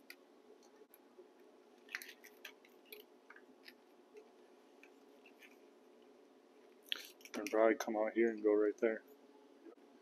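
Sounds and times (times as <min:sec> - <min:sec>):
clicks and crinkles of wiring: 0:01.8 - 0:03.9, 0:06.8 - 0:07.9.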